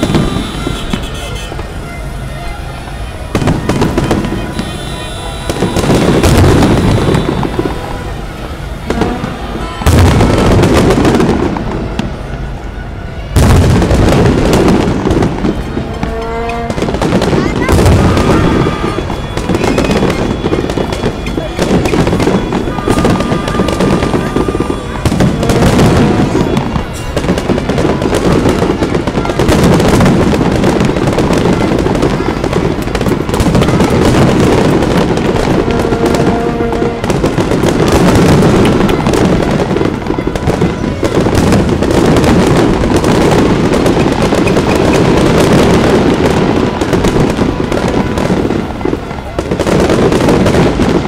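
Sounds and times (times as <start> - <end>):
fireworks bursting and crackling: 0.0 - 51.0.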